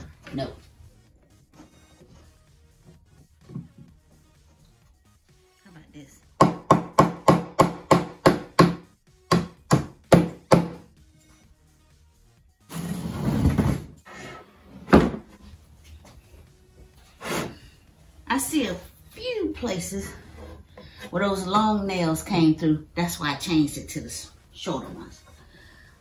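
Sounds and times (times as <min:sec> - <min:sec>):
hammer striking nails into wood: 0:06.4 - 0:10.8.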